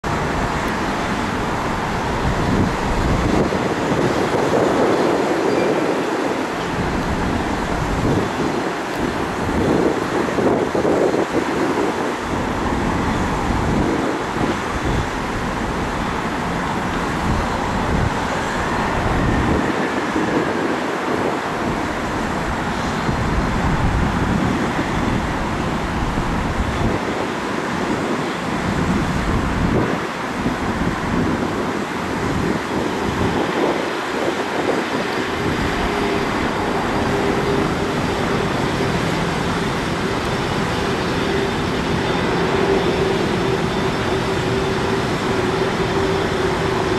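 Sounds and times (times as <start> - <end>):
rushing jet noise: 0.0 - 46.9
wind buffeting microphone: 0.0 - 46.9
engine hum: 28.4 - 46.9.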